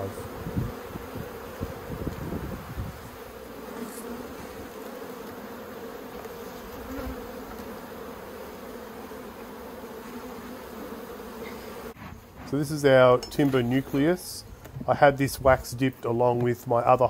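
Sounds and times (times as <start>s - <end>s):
honeybees humming: 0.0s - 15.8s.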